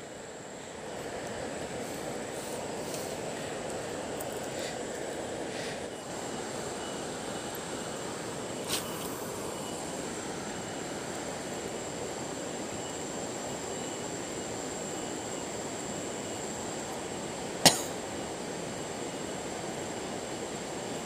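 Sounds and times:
river flowing: 0.0 - 14.7
thin high whine: 0.0 - 21.0.

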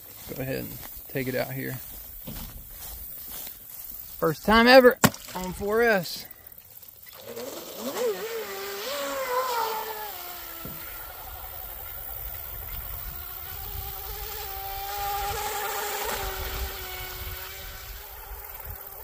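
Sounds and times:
electric motor high whine: 7.0 - 19.0.

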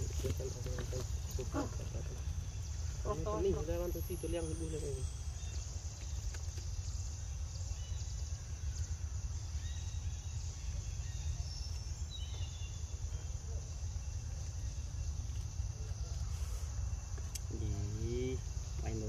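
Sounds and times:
high-pitched insect drone: 1.2 - 6.1.

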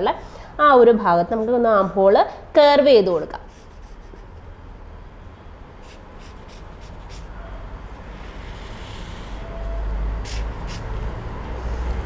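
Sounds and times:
marker scratching on paper: 3.3 - 4.5, 5.8 - 7.5, 8.1 - 12.0.

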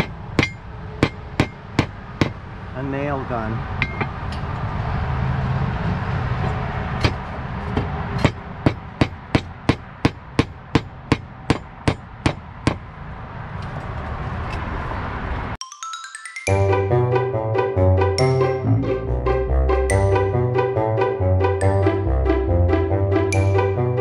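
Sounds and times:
hammer striking nails: 0.0 - 2.4, 7.0 - 12.8
music: 15.6 - 24.0.

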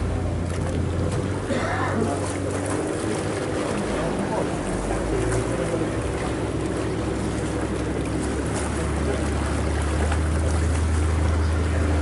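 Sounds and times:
boat engine humming: 0.0 - 12.0
wind: 0.0 - 12.0.

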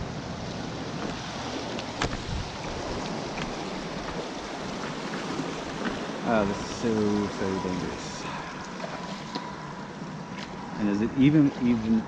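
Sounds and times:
person wading through water: 0.0 - 12.0
water sloshing around rocks: 0.0 - 12.0
wind noise on microphone: 2.0 - 4.3.

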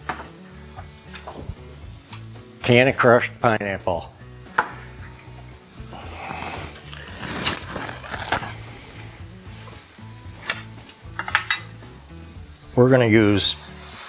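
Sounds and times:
food sizzling in frying pan: 0.0 - 14.0
can opener grinding: 6.2 - 9.1.

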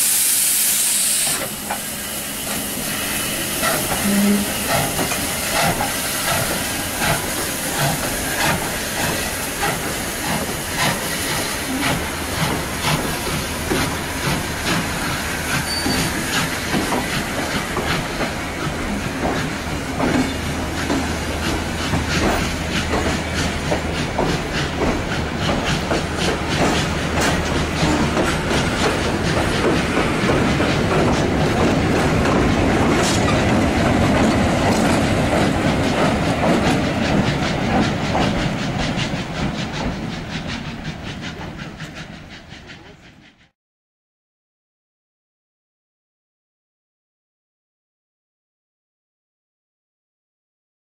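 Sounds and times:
steam hissing: 0.0 - 43.4
train wheels clicking over rail joints: 3.6 - 43.5.

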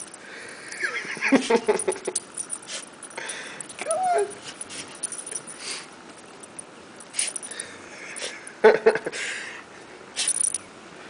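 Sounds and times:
puppy sniffing in snow: 2.6 - 2.9
puppy whining: 3.8 - 5.4.

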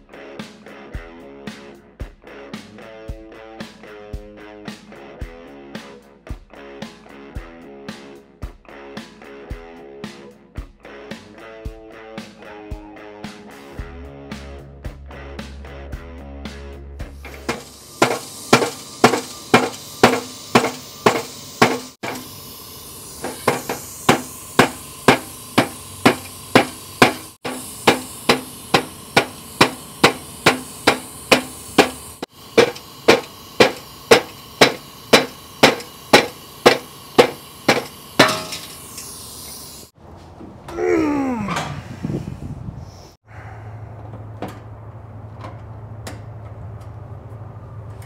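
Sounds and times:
hammer blows on metal: 17.2 - 22.4, 23.2 - 39.2.

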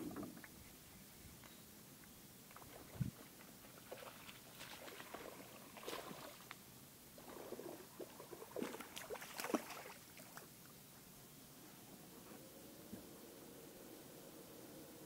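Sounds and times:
fish splashing in water: 3.7 - 6.5, 7.6 - 10.5.

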